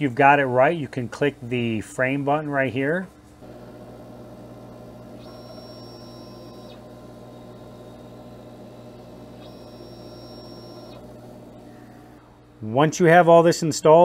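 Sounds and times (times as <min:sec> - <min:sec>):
fan and pump hum: 0:00.0 - 0:14.0
high steady tone: 0:03.4 - 0:12.2
stepper motors whining: 0:03.4 - 0:12.3.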